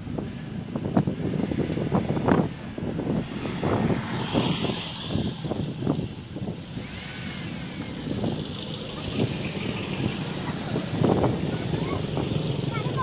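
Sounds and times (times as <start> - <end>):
car driving past: 1.3 - 5.9.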